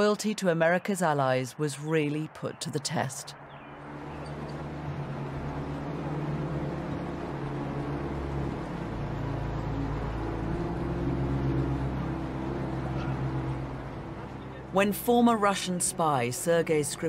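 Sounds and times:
low dark drone: 3.7 - 17.0.

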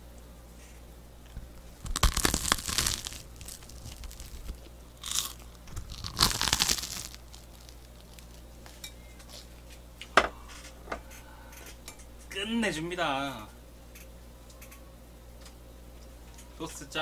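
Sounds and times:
toast crunching: 1.3 - 9.7.

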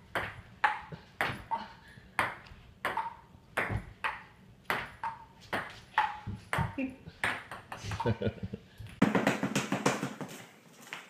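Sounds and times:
table tennis ball hits: 0.0 - 1.6, 2.2 - 8.0, 9.0 - 10.4.

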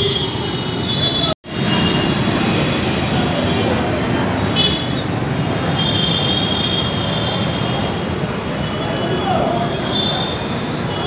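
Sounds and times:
vehicles passing close by: 0.0 - 11.0.

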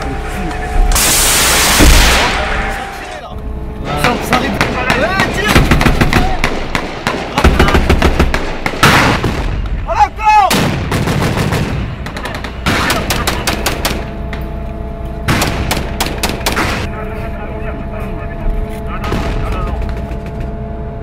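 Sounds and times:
heavy blasts: 0.0 - 3.1, 4.0 - 14.1
rapid rifle and machine gun fire: 4.1 - 9.8, 10.5 - 14.1, 15.3 - 16.9, 19.0 - 20.6.

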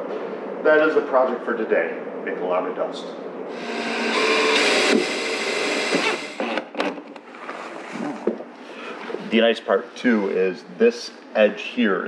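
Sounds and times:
cordless driver driving screw: 3.5 - 6.7.

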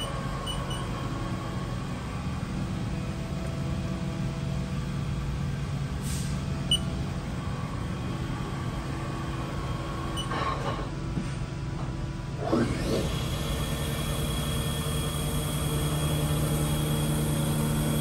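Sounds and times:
machine spindle humming and whining: 0.0 - 18.0.

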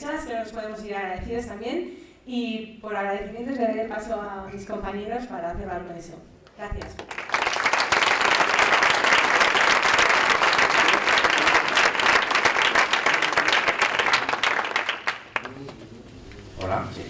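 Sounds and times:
audience applauding: 7.0 - 16.0.

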